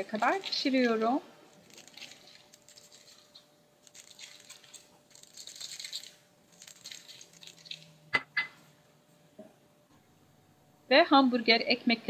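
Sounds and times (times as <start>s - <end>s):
seeds pattering on paper: 1.5s - 7.9s.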